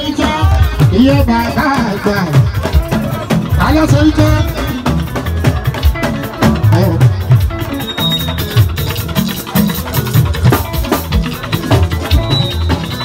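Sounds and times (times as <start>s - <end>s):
bass: 0.0s - 13.0s
live band music over loudspeakers: 0.0s - 13.0s.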